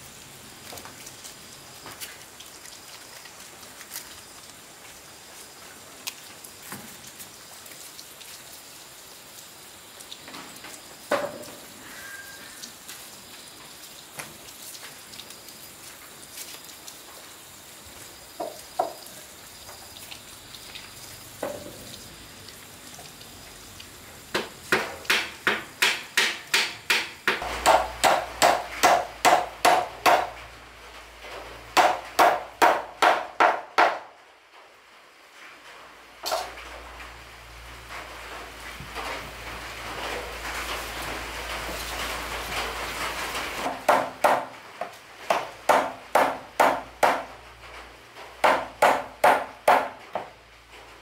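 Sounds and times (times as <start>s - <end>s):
hammer striking wood: 24.3s - 30.3s, 31.8s - 34.1s, 43.7s - 44.5s, 45.3s - 47.3s, 48.4s - 50.3s.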